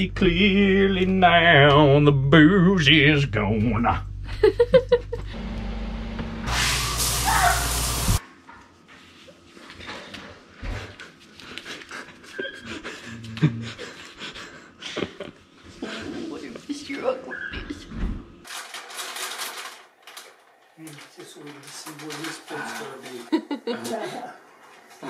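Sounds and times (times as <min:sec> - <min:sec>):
loud rushing hiss: 0:06.5 - 0:08.2
large dog panting: 0:10.6 - 0:14.9.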